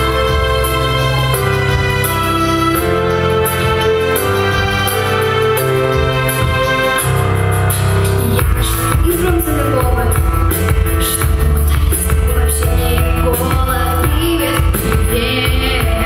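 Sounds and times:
keyboard chords: 0.0s - 16.0s
drum beat: 6.0s - 7.2s
girl singing: 8.6s - 10.4s, 11.0s - 16.0s.

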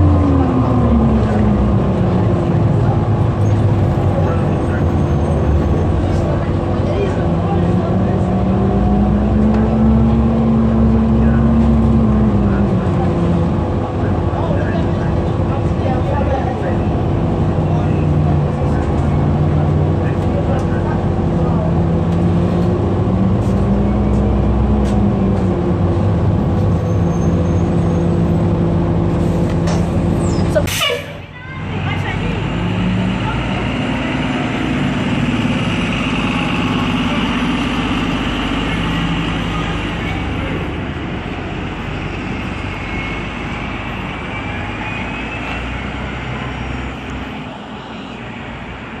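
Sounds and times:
bus drive hum: 0.0s - 49.0s
high falling squeal: 26.7s - 28.2s, 41.8s - 47.0s.

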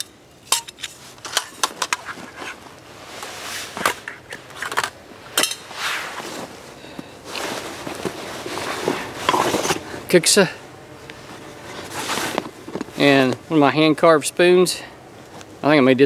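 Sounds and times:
fabric rustling: 2.0s - 4.6s, 5.6s - 10.0s, 11.1s - 13.3s.

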